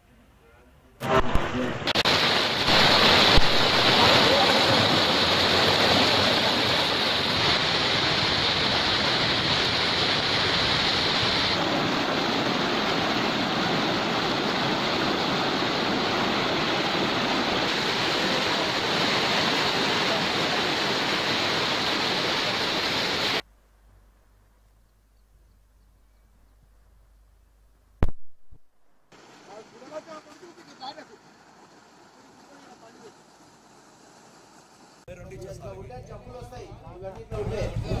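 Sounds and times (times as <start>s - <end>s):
floodwater rushing: 1.0s - 23.4s, 29.1s - 35.1s.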